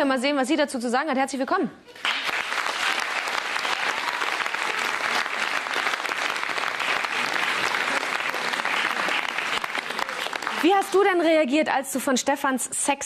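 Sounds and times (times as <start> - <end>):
audience applauding: 2.0 - 11.3.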